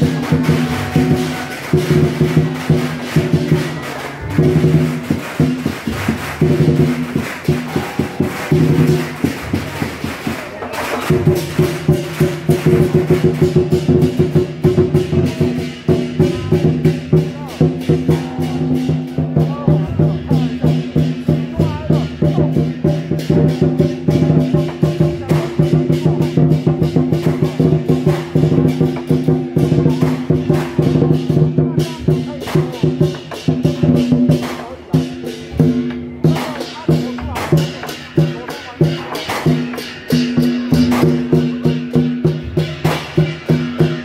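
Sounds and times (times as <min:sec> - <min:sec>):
gongs ringing: 0:00.0 - 0:09.7
cymbals crashing: 0:00.0 - 0:44.0
large drum beating: 0:00.0 - 0:44.0.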